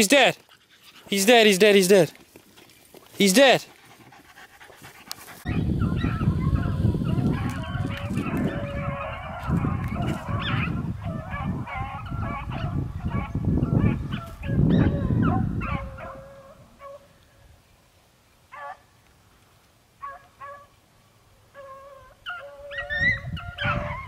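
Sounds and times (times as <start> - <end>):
dogs baying: 3.4 - 17.1, 20.0 - 20.7, 21.5 - 24.0.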